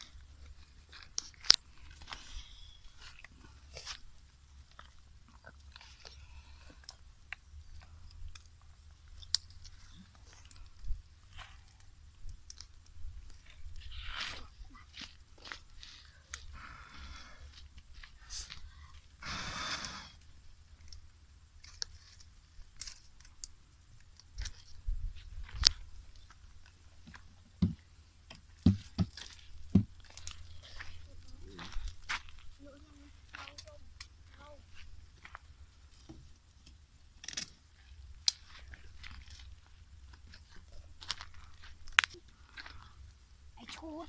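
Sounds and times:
twigs crackling in wood fire: 0:00.0 - 0:44.0
breathy rush of blown air: 0:19.2 - 0:20.2.

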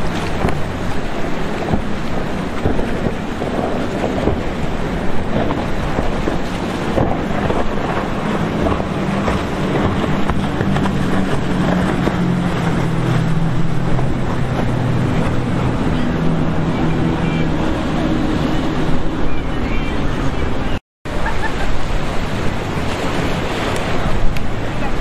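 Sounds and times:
powerboat engine drone: 0:00.0 - 0:25.0
rushing water: 0:00.0 - 0:25.0
wind buffeting microphone: 0:00.0 - 0:25.0.

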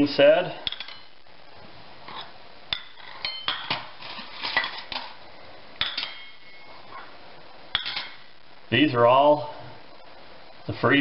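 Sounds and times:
ceramic plates clinking: 0:02.8 - 0:03.8, 0:05.8 - 0:07.0, 0:07.8 - 0:08.2.

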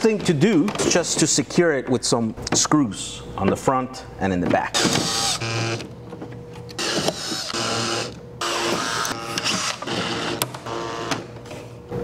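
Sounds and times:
cordless drill driving screws: 0:06.8 - 0:10.8.

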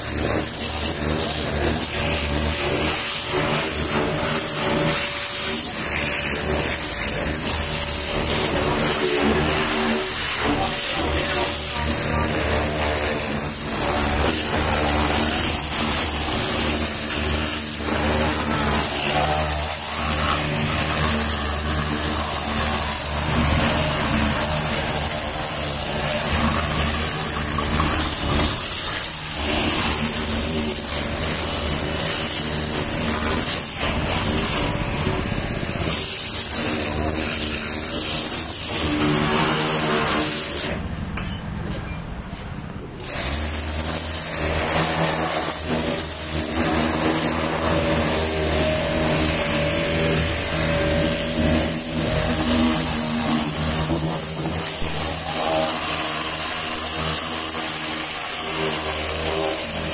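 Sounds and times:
water jet hissing on car: 0:00.0 - 0:40.8, 0:43.0 - 0:59.9
pressure washer motor humming: 0:00.0 - 0:41.8, 0:43.0 - 0:59.9.

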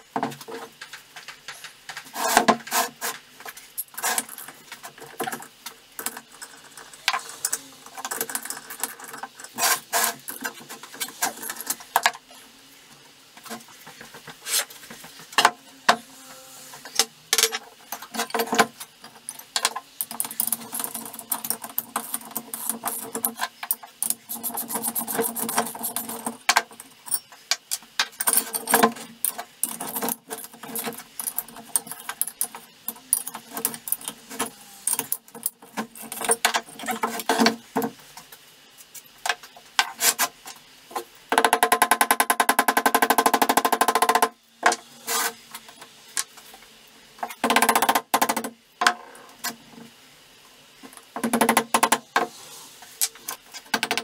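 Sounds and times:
metal tools clinking: 0:17.4 - 0:27.4.

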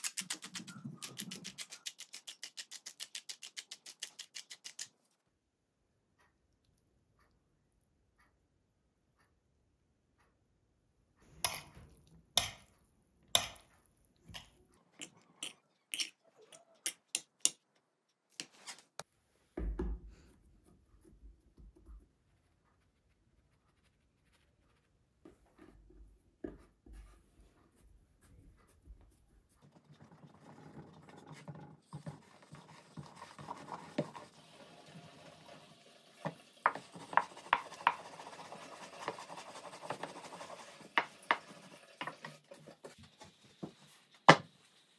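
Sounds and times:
utensils tapping and knocking: 0:36.2 - 0:38.2.

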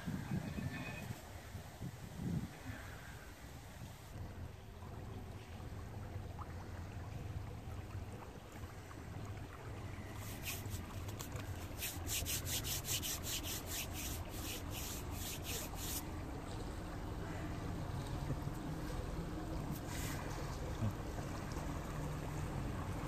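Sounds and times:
boat engine rumbling: 0:00.0 - 0:23.0
scratchy rubbing strokes: 0:10.2 - 0:16.0.

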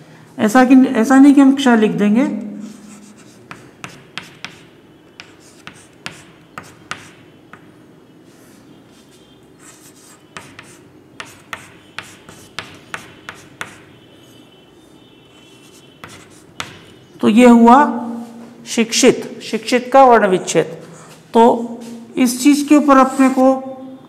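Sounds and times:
chalk tapping and scraping: 0:02.6 - 0:07.7, 0:08.3 - 0:14.5, 0:15.3 - 0:17.0.

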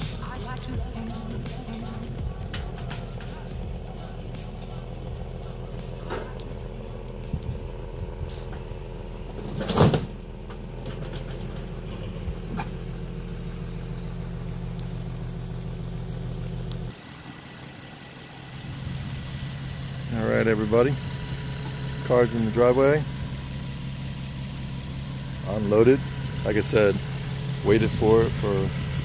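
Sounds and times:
car engine idling: 0:00.0 - 0:29.0
loud clunk on loading ramp: 0:09.4 - 0:10.2.

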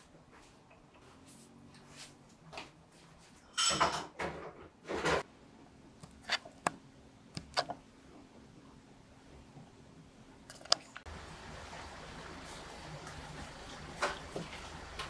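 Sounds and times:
tableware scraping and clattering: 0:03.5 - 0:05.2.

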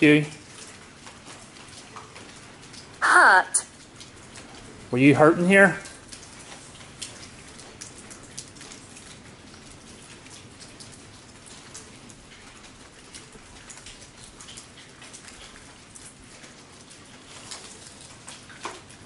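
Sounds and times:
heavy rain hiss: 0:00.0 - 0:00.4, 0:04.9 - 0:05.9
sharp drips and taps: 0:00.0 - 0:19.0.

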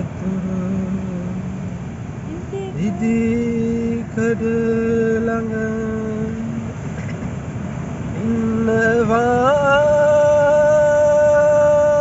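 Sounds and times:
person singing long note: 0:02.3 - 0:06.5.

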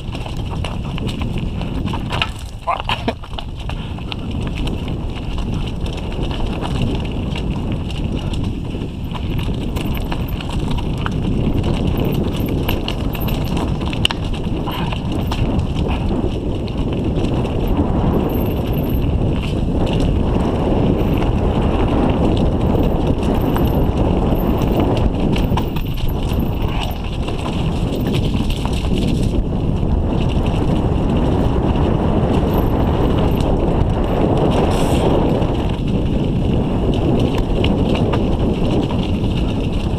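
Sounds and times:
bike and camera knocking: 0:00.0 - 0:29.4
bike tyres crunching over stones: 0:00.0 - 0:39.9.

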